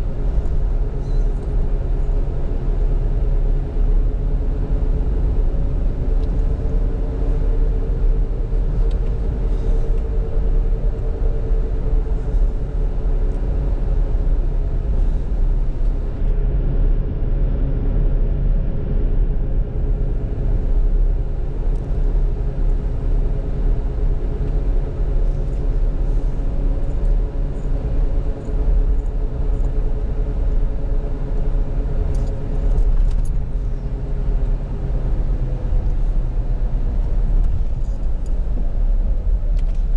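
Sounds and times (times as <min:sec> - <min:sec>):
engine and road rumble: 0:00.0 - 0:39.9
faint hum: 0:00.0 - 0:39.9.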